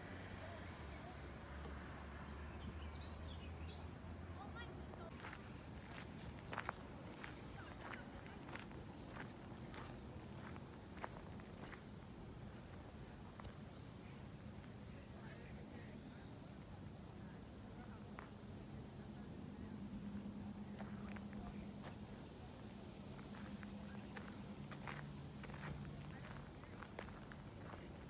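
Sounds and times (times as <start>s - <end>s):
faint cricket chirping: 0.0s - 28.0s.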